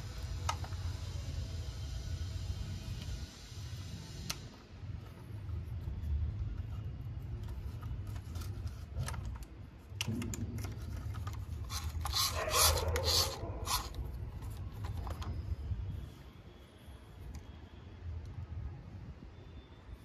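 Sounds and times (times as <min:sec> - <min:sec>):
tools scraping: 0:10.6 - 0:15.3.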